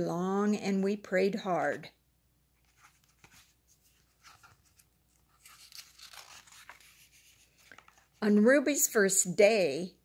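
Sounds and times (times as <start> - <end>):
paper crinkles: 2.6 - 8.2
paper pages rustling: 2.6 - 8.3.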